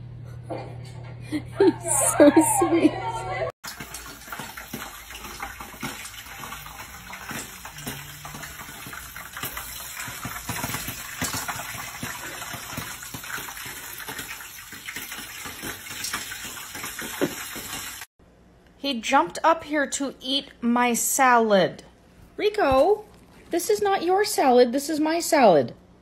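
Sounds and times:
popcorn popping: 3.6 - 18.0.

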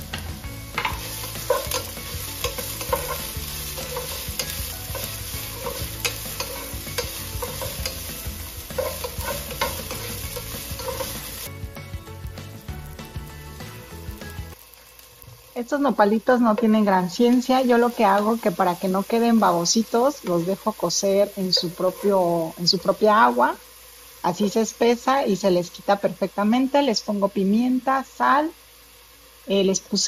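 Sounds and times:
onion sizzling in hot oil: 0.0 - 30.0
wooden spoon scraping pan: 0.8 - 11.4, 21.5 - 22.4.

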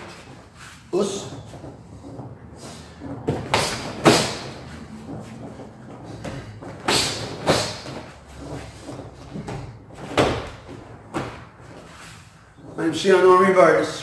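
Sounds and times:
feet stepping on mats: 0.0 - 12.7
strikes landing with slapping thuds: 3.0 - 11.8.

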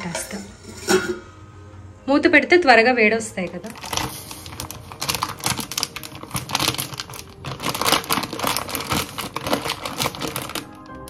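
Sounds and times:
rapid clicking and crackling: 3.7 - 11.0.

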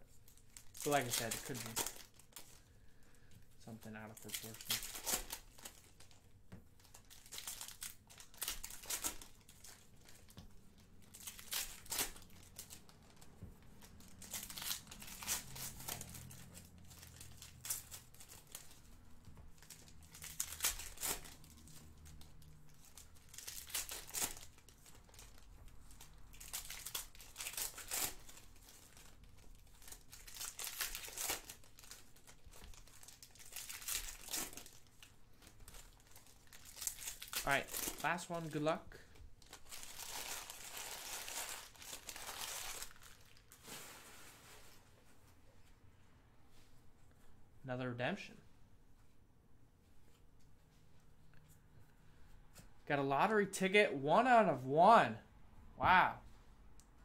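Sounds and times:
wrappers tearing and crinkling: 0.2 - 2.9, 3.8 - 6.2, 6.8 - 44.0.

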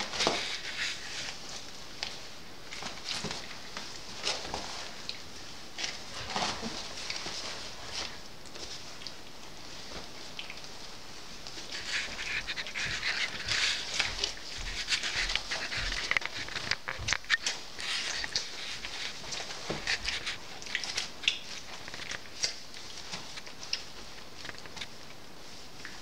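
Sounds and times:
paws scrabbling: 0.0 - 26.0
puppy pads rustling and crinkling: 0.0 - 26.0
puppies play-fighting: 5.8 - 26.0.

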